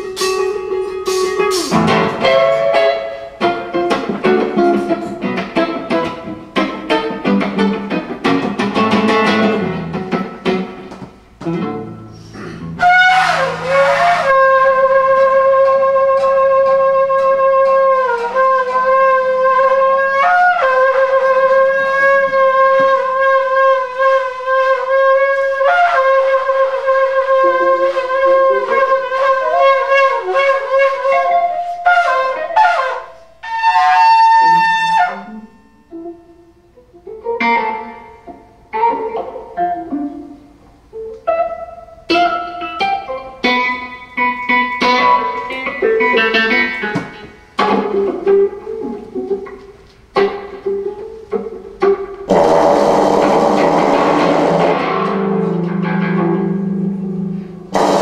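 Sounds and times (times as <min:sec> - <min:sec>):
electric guitar picking: 0:00.0 - 0:58.0
kudu horn blown: 0:12.4 - 0:36.0, 0:52.3 - 0:55.2, 0:57.7 - 0:58.0.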